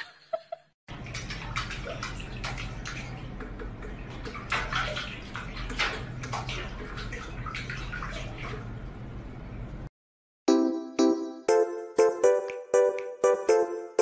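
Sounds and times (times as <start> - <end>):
cat splashing water in a sink: 0.9 - 9.2.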